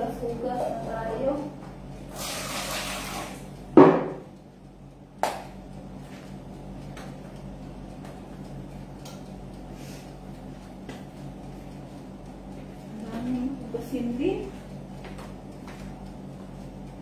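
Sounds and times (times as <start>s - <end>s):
low steady hum: 0.0s - 17.0s
loud knock: 3.8s - 4.3s.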